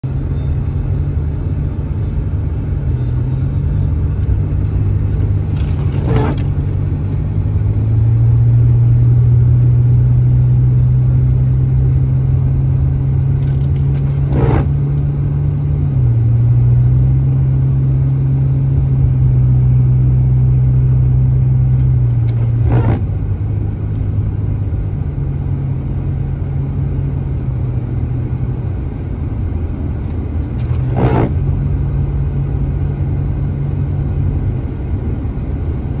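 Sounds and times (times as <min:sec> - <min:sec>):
car engine and tyres droning: 0:00.0 - 0:36.0
windshield wipers swishing: 0:04.1 - 0:07.2, 0:10.8 - 0:15.0, 0:21.5 - 0:24.7, 0:29.1 - 0:32.3.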